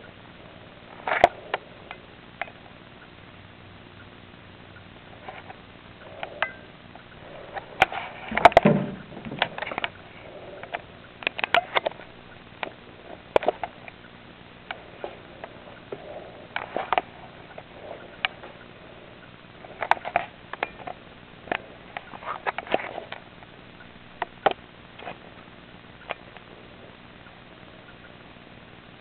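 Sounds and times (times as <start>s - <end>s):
knocks: 8.4s - 9.6s.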